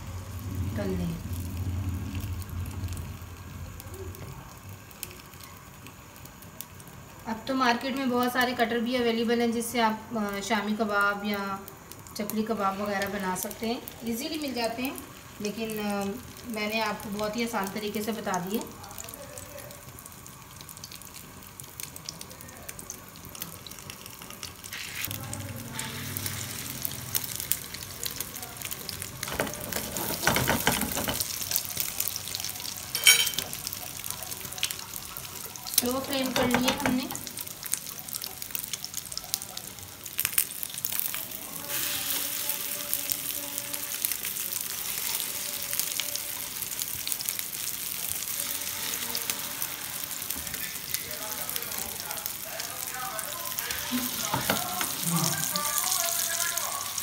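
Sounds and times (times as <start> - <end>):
low hum: 0.0 - 4.0
food sizzling in hot oil: 0.0 - 57.0.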